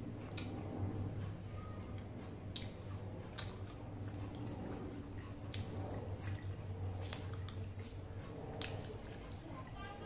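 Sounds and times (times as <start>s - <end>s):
low steady hum: 0.0s - 10.0s
wet sticky eating sounds: 2.0s - 9.8s.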